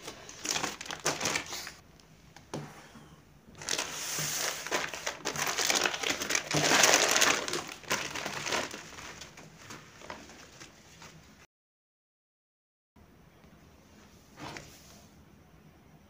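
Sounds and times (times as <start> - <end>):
plastic packet crinkling: 0.0 - 1.8, 3.6 - 11.2.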